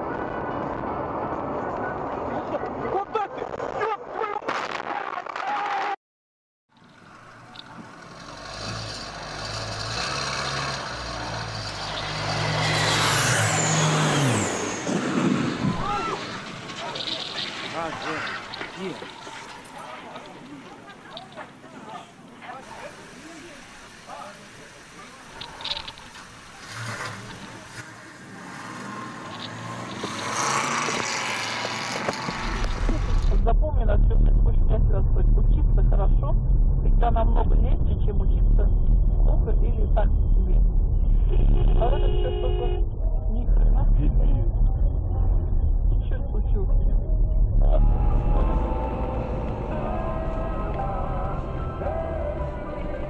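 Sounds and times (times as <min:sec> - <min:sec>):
road noise: 0:00.0 - 0:05.1, 0:06.7 - 0:53.0
vehicle engine running: 0:22.7 - 0:53.0.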